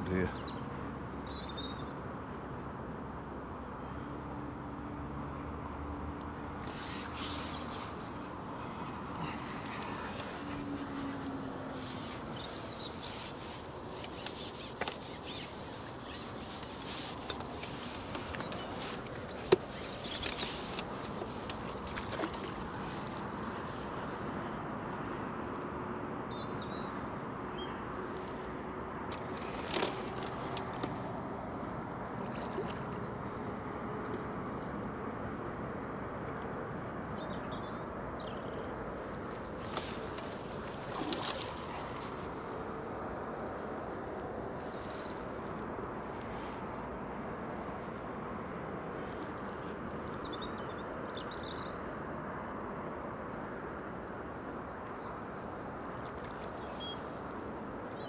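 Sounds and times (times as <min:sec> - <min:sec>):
outdoor background hiss: 0:06.2 - 0:25.4.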